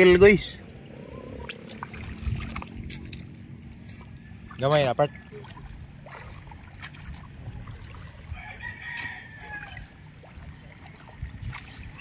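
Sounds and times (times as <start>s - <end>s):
feet stepping through water and mud: 1.0s - 12.0s
rooster crowing: 8.3s - 9.9s.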